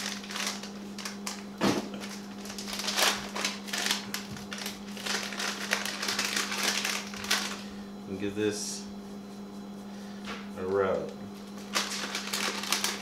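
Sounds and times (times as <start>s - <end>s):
plastic packet crinkling: 0.0s - 7.7s, 11.6s - 13.0s
steady low hum: 0.0s - 13.0s.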